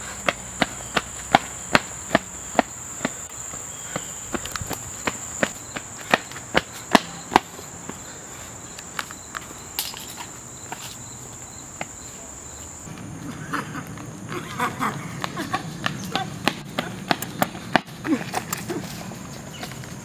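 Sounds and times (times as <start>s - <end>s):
running footsteps on path: 0.0s - 12.2s, 12.8s - 20.0s.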